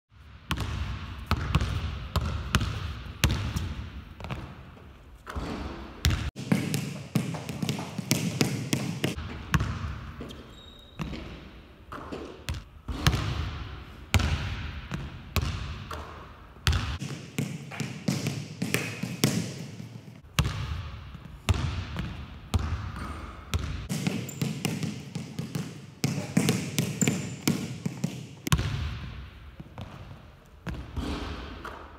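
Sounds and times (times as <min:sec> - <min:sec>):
basketball bouncing on hardwood: 0:00.5 - 0:04.5, 0:05.3 - 0:10.4, 0:23.5 - 0:29.0.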